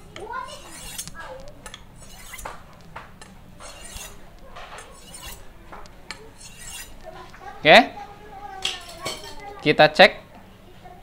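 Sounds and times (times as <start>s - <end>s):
sharpening steel scraping blade: 0.4s - 2.6s, 3.2s - 4.2s, 4.8s - 5.5s, 6.1s - 7.0s.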